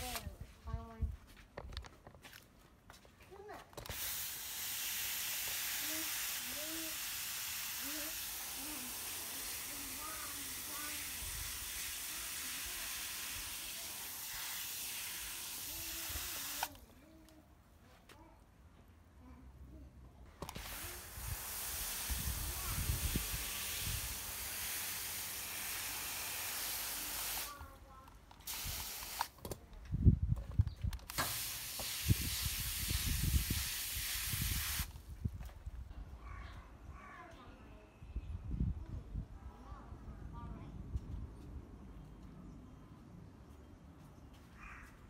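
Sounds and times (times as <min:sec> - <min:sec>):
hose nozzle spraying water: 0:00.0 - 0:00.3, 0:03.8 - 0:16.8, 0:20.4 - 0:27.6, 0:28.4 - 0:29.4, 0:31.1 - 0:35.0.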